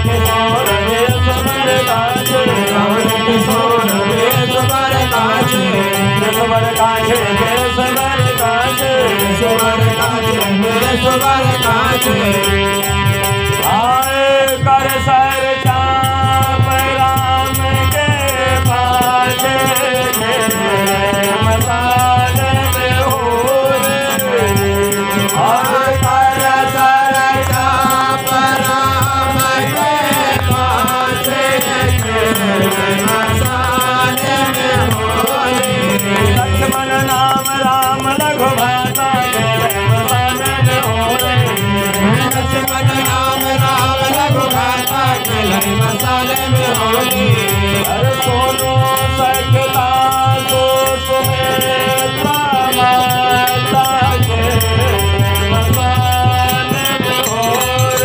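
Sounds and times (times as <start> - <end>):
harmonium chords: 0.0 - 58.0
person singing: 0.0 - 58.0.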